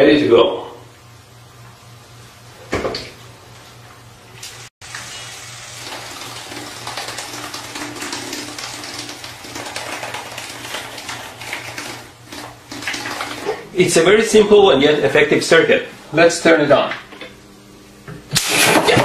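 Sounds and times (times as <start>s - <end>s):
electric spark crackling and hissing: 18.3s - 19.0s.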